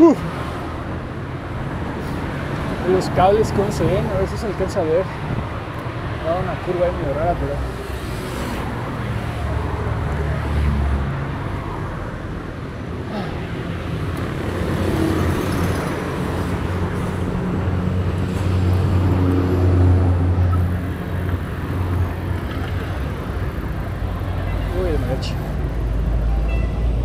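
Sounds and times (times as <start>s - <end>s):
vehicle engines running: 13.0s - 27.0s.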